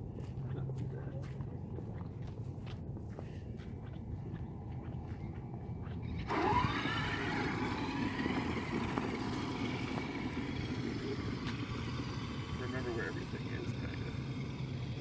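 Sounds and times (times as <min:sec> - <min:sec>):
footsteps ticking: 0:00.0 - 0:06.3
tyres running over dirt: 0:00.0 - 0:15.0
electric motor whining: 0:06.0 - 0:15.0.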